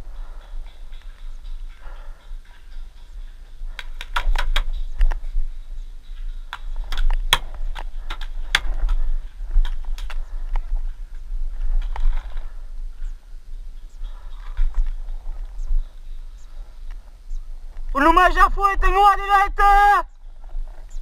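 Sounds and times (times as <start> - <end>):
wind rumble on microphone: 0.0 - 21.0
paintball gun cracks: 3.8 - 5.2, 6.5 - 9.0.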